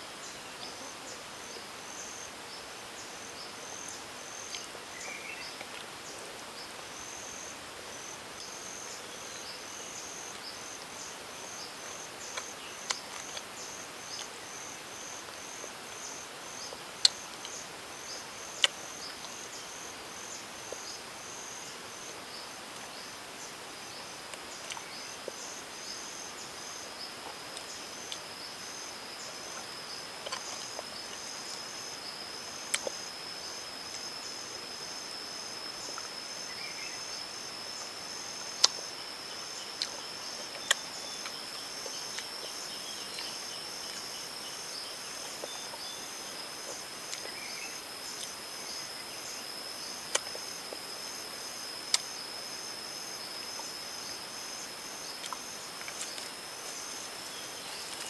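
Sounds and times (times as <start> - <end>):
insects buzzing: 0.0 - 58.0
pulsed insect chirping: 23.9 - 58.0.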